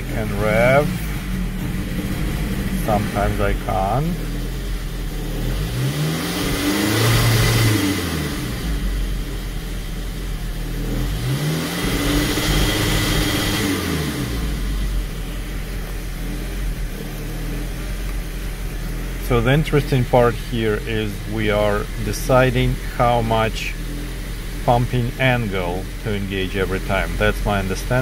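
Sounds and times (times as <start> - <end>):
car engine revving: 0.0 - 28.0.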